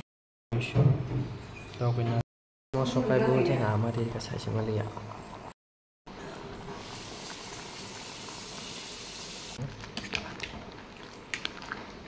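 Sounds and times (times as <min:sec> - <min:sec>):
food boiling in a pot: 0:06.1 - 0:12.0.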